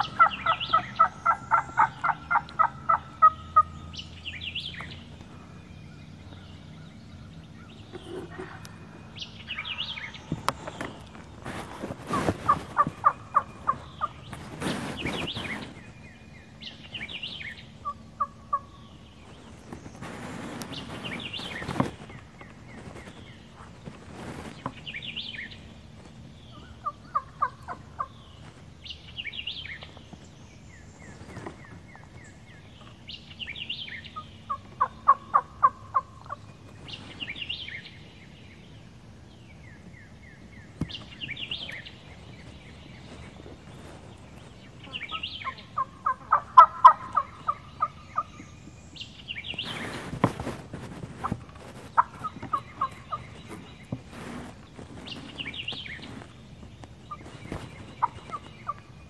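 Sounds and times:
turkey calling: 0.0 - 7.0, 7.6 - 15.8, 16.6 - 23.2, 26.5 - 28.6, 31.3 - 37.9, 43.0 - 48.5, 49.3 - 56.3, 57.0 - 58.9
songbirds chirping: 0.0 - 59.0.

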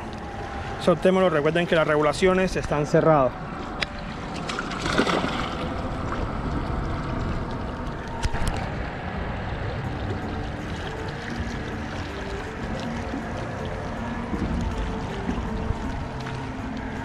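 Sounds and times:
wind buffeting microphone: 0.0 - 17.0
small waves lapping on rocks: 1.1 - 8.6.

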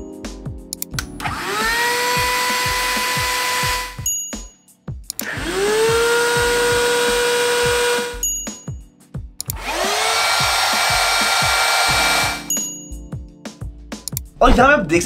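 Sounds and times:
background music with steady beat: 0.0 - 15.0
handheld vacuum whining: 1.2 - 4.0, 5.2 - 8.2, 9.5 - 12.5.

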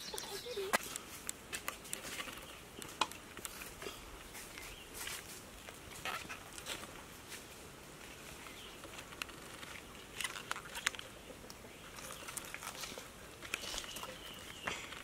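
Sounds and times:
fruit rustling: 3.3 - 15.0.

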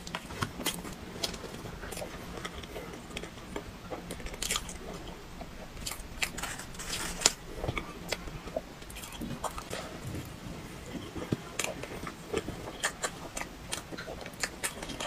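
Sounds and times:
chewing and crunching cake: 0.0 - 15.0
mouth clicks: 12.4 - 15.0.

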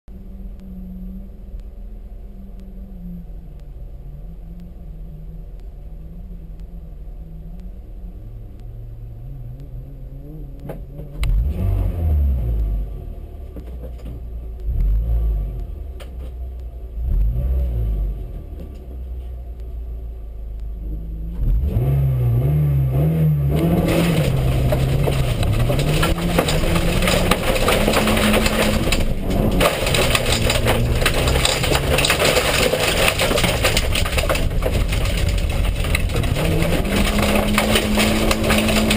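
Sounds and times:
rally car engine revving: 0.1 - 19.3, 20.6 - 38.9
gravel and tyre noise: 0.1 - 38.9.

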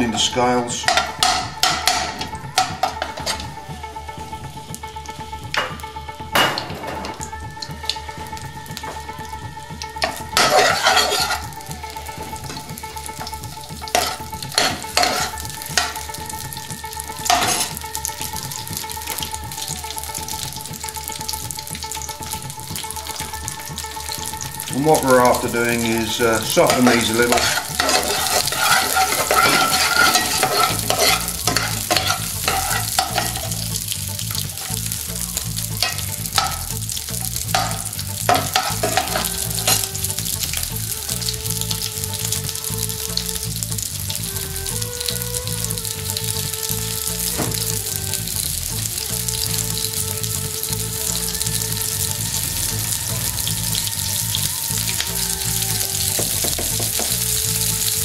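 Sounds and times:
onions sizzling in oil: 0.0 - 58.0
metal spoon scraping a pan: 0.1 - 3.4, 10.0 - 11.6, 13.9 - 16.0, 17.2 - 17.8, 24.9 - 35.0, 35.8 - 36.8, 37.4 - 40.5.

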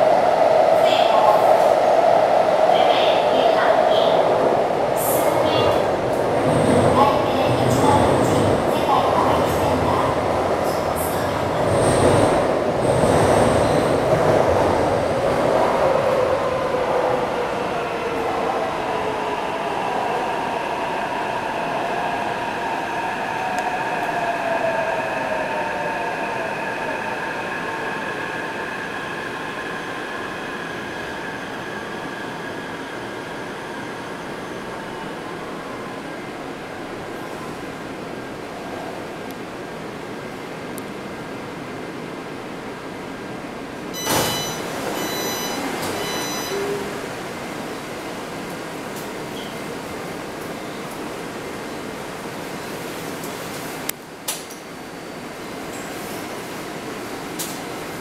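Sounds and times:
subway cabin noise: 0.0 - 58.0
train wheel and track rumble: 0.0 - 58.0
short high door tones: 44.0 - 46.6.

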